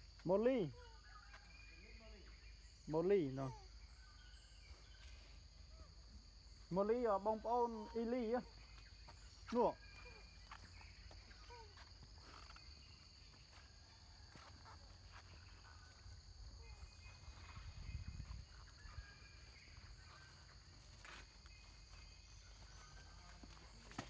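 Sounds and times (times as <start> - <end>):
faint chirps: 0.0 - 24.0
forest insects droning: 0.0 - 24.0.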